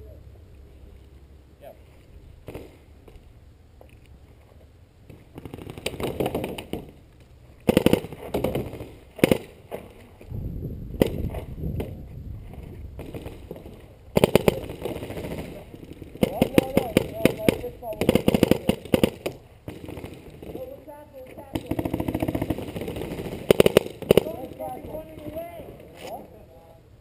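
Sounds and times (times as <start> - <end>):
paintball markers firing rapidly: 5.1 - 7.0, 7.6 - 9.9, 13.0 - 26.3.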